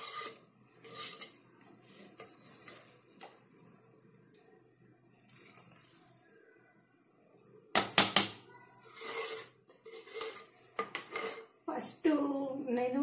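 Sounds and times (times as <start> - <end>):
spoon stirring through rice: 0.0 - 6.2, 8.7 - 11.6.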